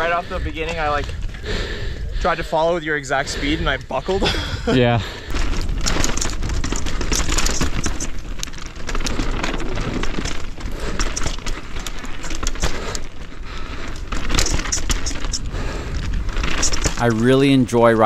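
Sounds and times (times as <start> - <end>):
bike tyres rolling on rock: 0.0 - 18.0
low rush of wind: 0.0 - 18.0
bike rattling clicks and knocks: 5.2 - 18.0.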